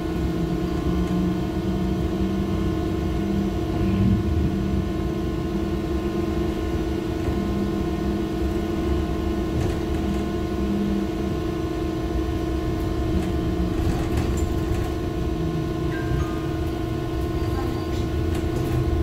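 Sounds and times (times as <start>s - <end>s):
steady electric hum: 0.0s - 19.0s
trolleybus low rolling rumble: 0.0s - 19.0s.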